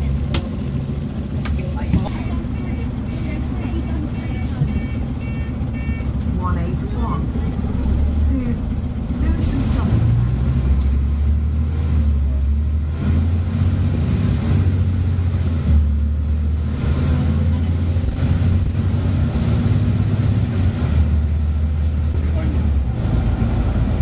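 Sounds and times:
bus diesel engine accelerating: 0.0 - 24.0.

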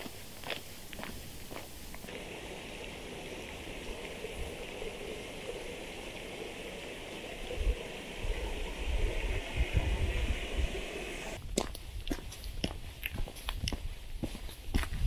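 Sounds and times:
stream water rushing: 2.0 - 11.4.

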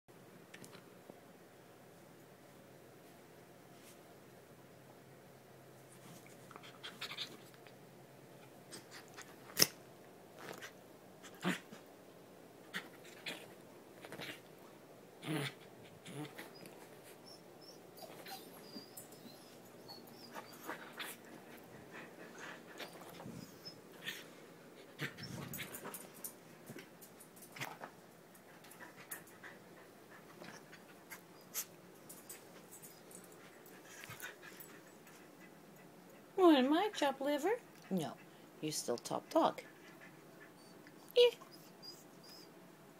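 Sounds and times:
small dogs play-fighting: 5.9 - 9.8, 10.4 - 11.9, 12.6 - 36.4, 39.6 - 42.4
dog whimpering and breathing: 6.6 - 7.5, 15.9 - 26.0, 39.6 - 42.6
soft clicks and rustles: 12.7 - 14.6, 25.0 - 29.6, 30.2 - 36.2.

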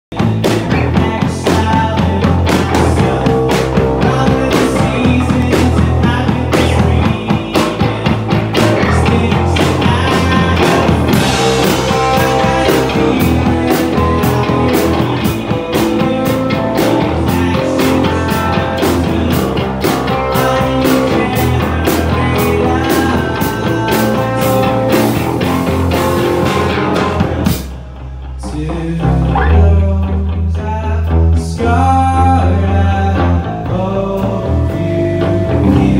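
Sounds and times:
live rock band playing: 0.1 - 35.9.

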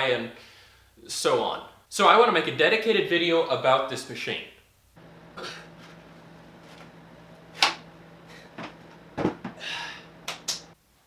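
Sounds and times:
low steady hum: 5.0 - 10.8
thuds on floor: 8.5 - 9.7.

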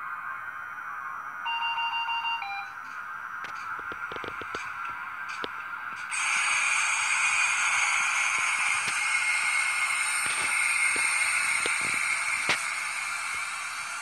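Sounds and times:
locomotive hiss from small speaker: 2.9 - 14.0.

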